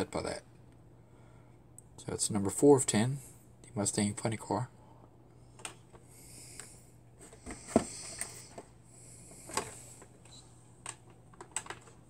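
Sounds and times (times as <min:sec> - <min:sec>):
plastic packaging clicks and knocks: 0:10.8 - 0:12.0.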